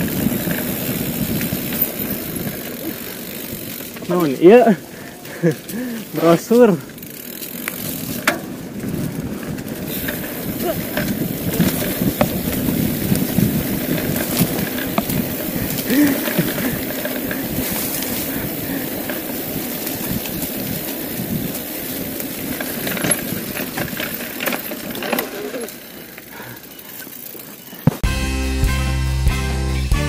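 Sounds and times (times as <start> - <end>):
wind rush on microphone: 0.0 - 3.8, 7.9 - 24.1
bike rattling: 0.0 - 28.0
bike tyres rolling over dirt: 0.0 - 28.1.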